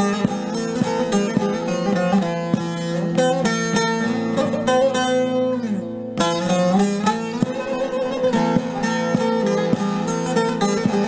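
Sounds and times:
plucked string melody: 0.0s - 11.0s.

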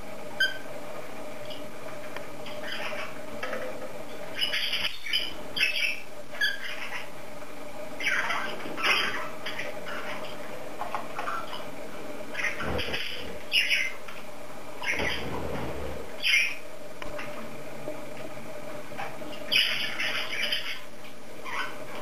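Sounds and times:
faint steady hum: 0.0s - 22.0s
cockatiel chirping and squawking: 2.4s - 3.2s, 4.3s - 7.1s, 8.0s - 10.3s, 12.3s - 14.0s, 14.8s - 15.3s, 16.2s - 16.6s, 19.4s - 21.8s.

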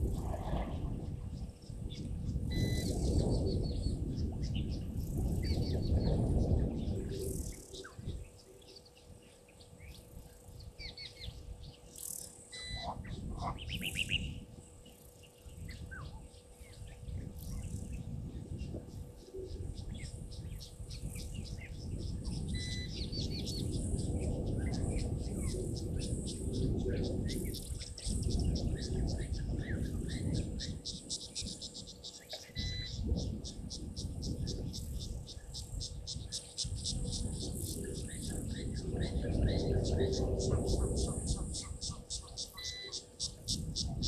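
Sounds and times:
birds trilling: 0.7s - 44.0s
insects ticking: 18.6s - 44.0s.

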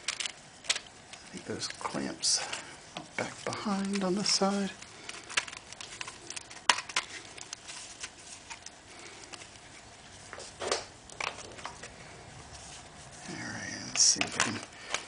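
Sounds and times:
small parts clicking and tapping: 0.0s - 9.6s.

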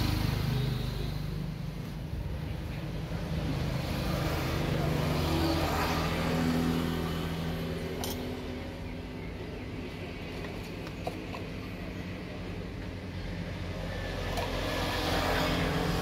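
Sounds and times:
engine hum: 0.0s - 16.0s.

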